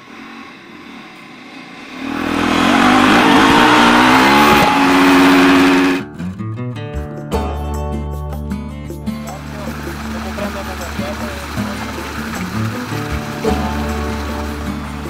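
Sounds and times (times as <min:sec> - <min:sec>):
engine revving hard: 0:01.6 - 0:06.2, 0:09.4 - 0:15.0
music-like tones: 0:02.4 - 0:15.0.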